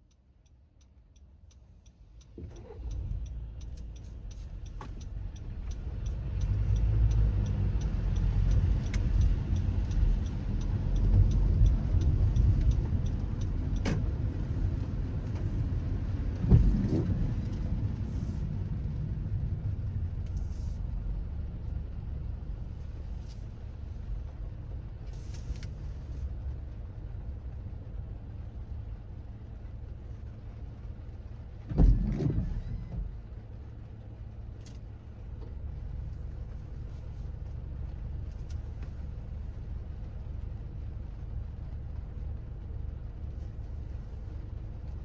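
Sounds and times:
light rapid ticking: 0.0 - 16.3
car road rumble and tyre noise: 0.0 - 45.0.

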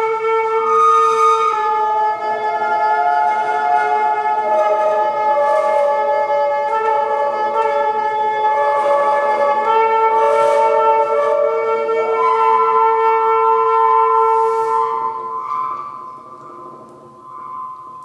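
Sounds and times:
airy breath noise: 14.3 - 16.3.

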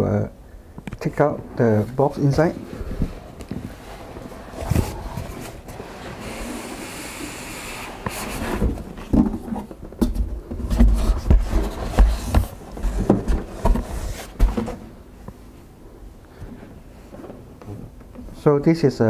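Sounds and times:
boxes knocking and thumping: 2.4 - 5.8, 8.3 - 15.0
box scraping out of carton: 2.8 - 9.7.

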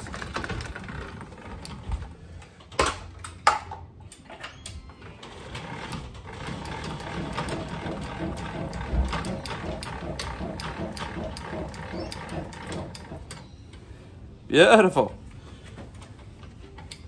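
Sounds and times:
crank gear mechanism clicking: 4.6 - 13.5.

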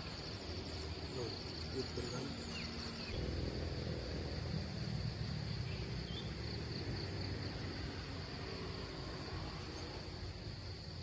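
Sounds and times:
insects chirring: 0.0 - 11.0
low rumbling noise: 2.3 - 11.0.

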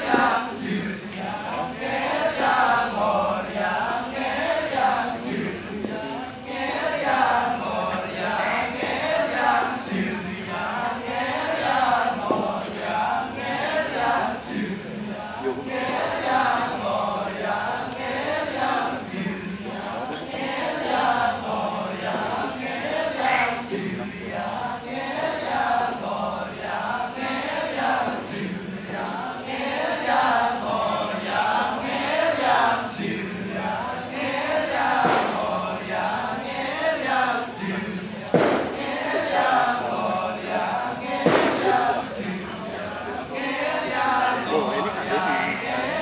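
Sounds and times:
low steady voice: 0.0 - 46.0
men chanting together: 0.0 - 46.0
sharp knock: 35.0 - 35.4, 38.4 - 38.8, 41.2 - 41.7.

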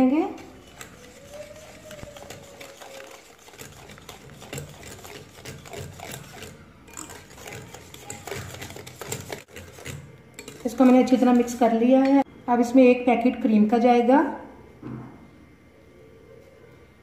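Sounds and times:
whisk ticking against glass bowl: 0.4 - 12.2.

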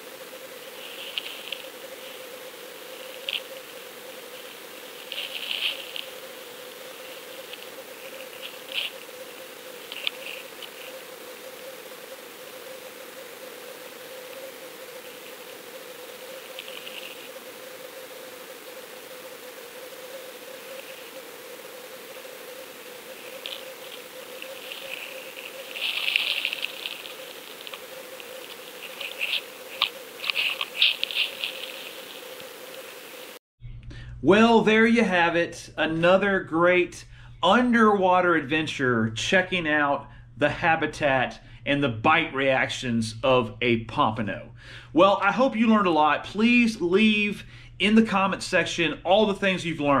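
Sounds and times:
underwater hiss: 0.0 - 3.6, 15.0 - 33.4
faint steady hum: 0.0 - 50.0
scratchy crackling: 0.7 - 11.2, 13.8 - 17.6, 22.7 - 33.1.

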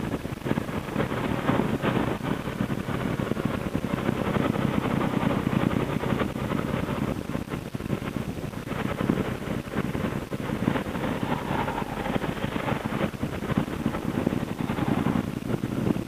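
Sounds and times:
wind noise on microphone: 0.0 - 16.0
motorcycle engine rumbling: 9.3 - 15.6.

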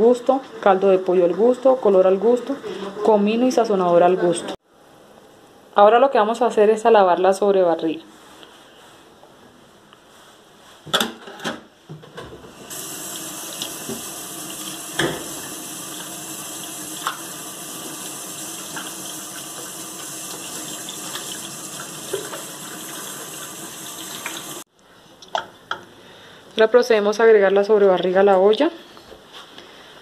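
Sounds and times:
tap running into metal sink: 13.4 - 16.2, 16.9 - 17.5, 18.6 - 23.1.

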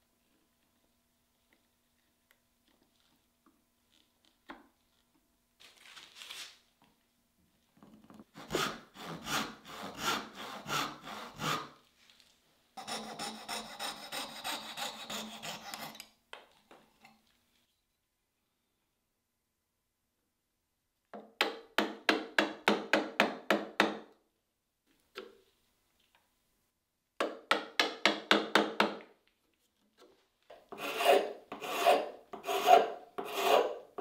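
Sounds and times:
hand saw cutting wood: 8.3 - 11.8, 12.8 - 16.2, 30.7 - 34.0.

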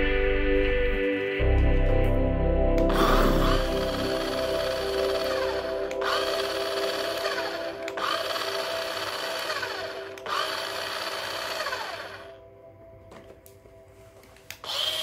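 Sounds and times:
background music: 0.0 - 15.0
toy car motor whirring: 2.9 - 12.4, 14.5 - 15.0.

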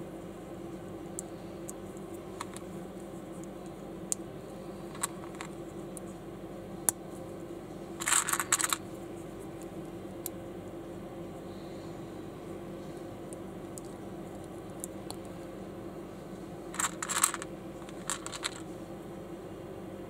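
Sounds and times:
steady low hum: 0.0 - 20.0
plastic bricks clicking: 4.9 - 5.5, 8.0 - 8.8, 16.8 - 18.6.

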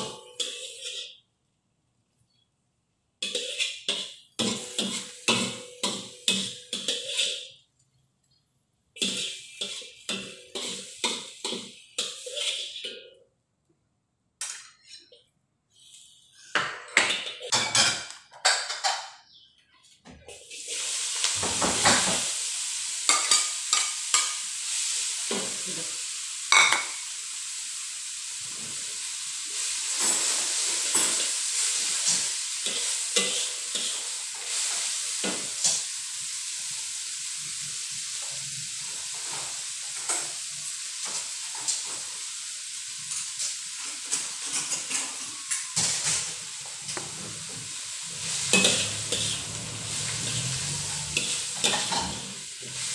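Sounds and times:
cabbage sizzling in a wok: 0.0 - 1.2, 3.2 - 7.6, 9.0 - 13.0, 20.3 - 52.9
spatula scraping a wok: 0.0 - 1.2, 3.2 - 7.6, 9.0 - 13.2, 20.3 - 52.9.

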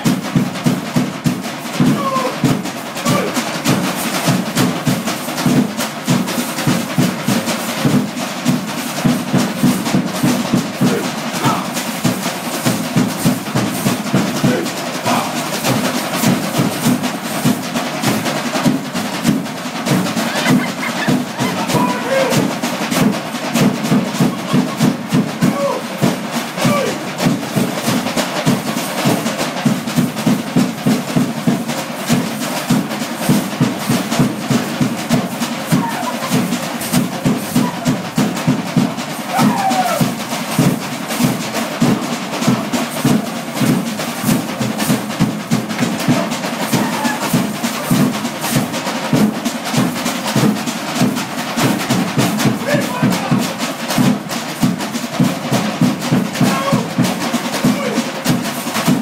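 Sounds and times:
drum beating steady rhythm: 0.0 - 59.0
faint men's voices: 1.9 - 3.5, 10.8 - 11.9, 13.7 - 16.0, 19.8 - 22.9, 23.8 - 27.2, 35.6 - 38.2, 52.6 - 53.8, 56.4 - 58.3.

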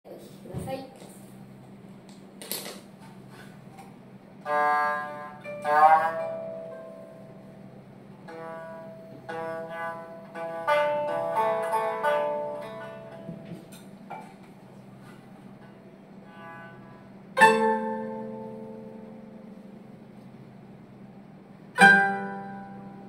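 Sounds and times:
koto plucked notes: 4.4 - 20.4, 21.7 - 23.0
shamisen plucked notes: 4.4 - 20.8, 21.5 - 23.0.

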